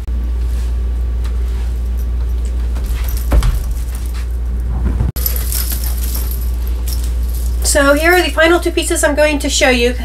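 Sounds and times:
steady low hum: 0:00.0 - 0:10.0
chainmail clinking: 0:01.8 - 0:04.4, 0:05.2 - 0:08.7.

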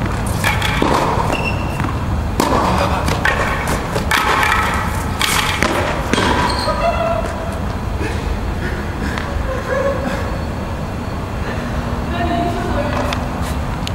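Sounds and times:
racquet hitting tennis ball: 0:00.0 - 0:07.8
shoes squeaking on court: 0:00.0 - 0:07.8.

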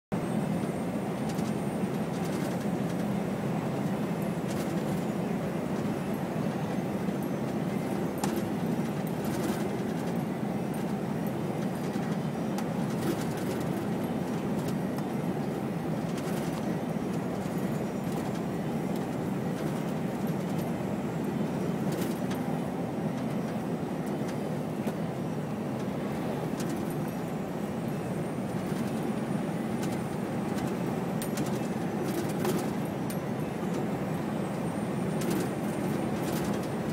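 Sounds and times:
truck diesel engine drone: 0:00.1 - 0:36.9.

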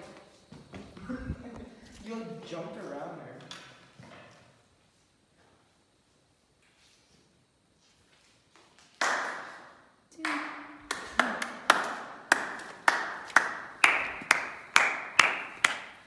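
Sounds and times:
hands clapping with echo: 0:08.8 - 0:16.0.

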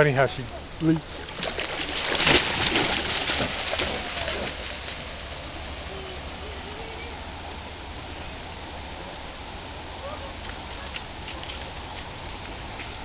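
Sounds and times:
stream rushing: 0:00.0 - 0:13.0
dog splashing through water: 0:01.1 - 0:06.6.

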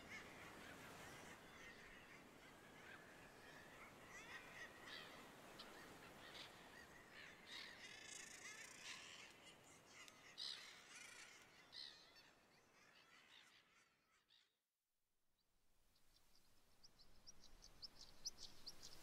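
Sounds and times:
faint bird calls: 0:00.0 - 0:14.6.

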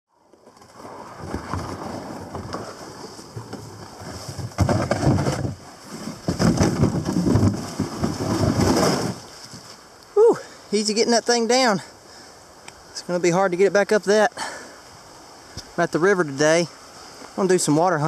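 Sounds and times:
plastic kayak scraping and rustling: 0:00.1 - 0:10.1.

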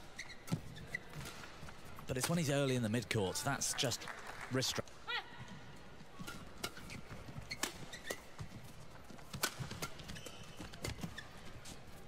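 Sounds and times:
shoes squeaking on court: 0:00.0 - 0:02.1, 0:06.1 - 0:12.0.

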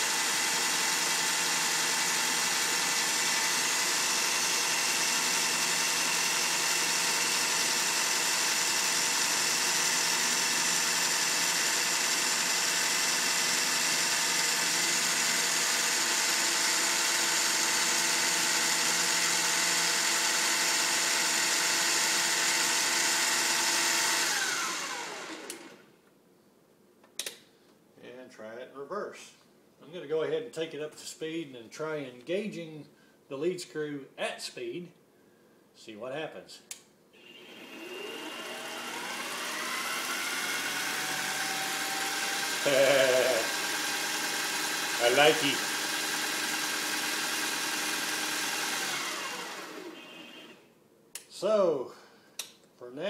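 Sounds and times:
lathe motor whine: 0:00.0 - 0:25.8, 0:37.2 - 0:50.6
lathe spinning down: 0:00.0 - 0:25.8, 0:37.2 - 0:50.6.

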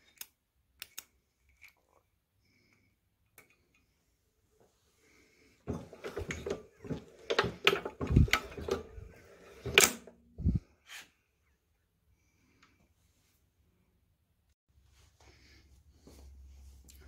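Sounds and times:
engine mechanism clicking and knocking: 0:05.7 - 0:10.0.

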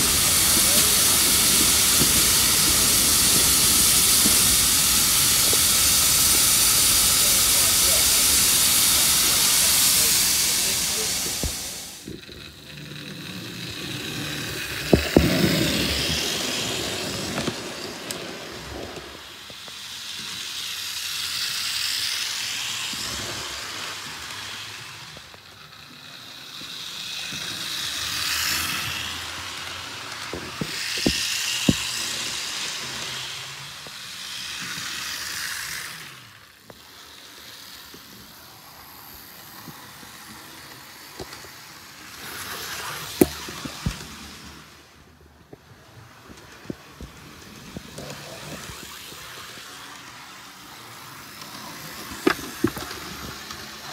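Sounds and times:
sharp clicks from track: 0:00.0 - 0:26.0, 0:39.6 - 0:44.6
model train motor whirring: 0:00.0 - 0:53.9.

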